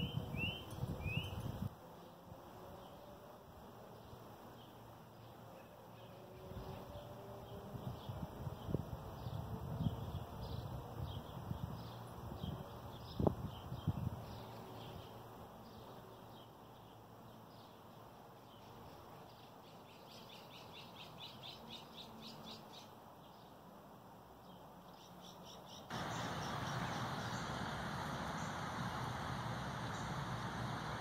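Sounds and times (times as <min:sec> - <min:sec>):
small birds chirping: 0:00.0 - 0:01.6, 0:03.9 - 0:23.6, 0:24.4 - 0:31.0
faint outdoor background noise: 0:00.0 - 0:31.0
loud steady noise: 0:25.9 - 0:31.0.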